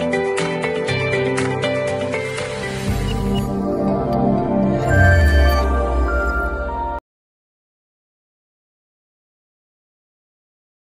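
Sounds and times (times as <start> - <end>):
sustained tone music: 2.0 - 7.0.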